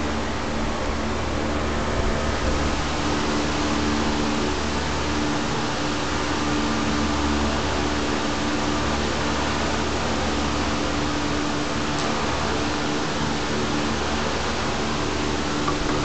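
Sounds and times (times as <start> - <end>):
low hum: 9.2 - 16.0.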